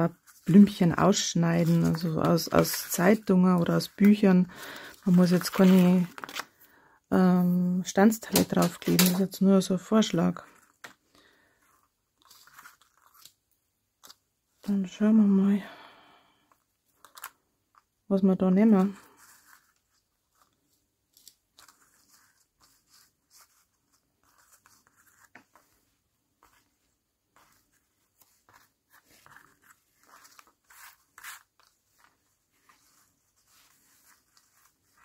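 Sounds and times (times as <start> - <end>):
paper rustling: 0.1 - 6.7, 8.2 - 9.3, 10.4 - 13.4, 18.7 - 35.0.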